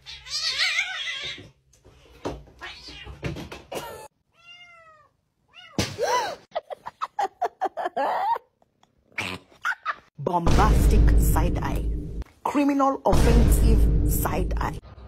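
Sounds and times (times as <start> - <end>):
cats meowing: 0.0 - 1.5, 2.1 - 3.3, 4.3 - 5.8.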